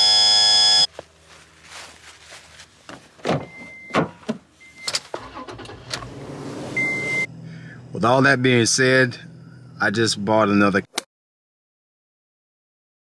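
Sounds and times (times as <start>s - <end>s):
loud steady tone: 0.0s - 0.9s
short electronic beeps: 0.0s - 0.9s, 6.8s - 7.3s.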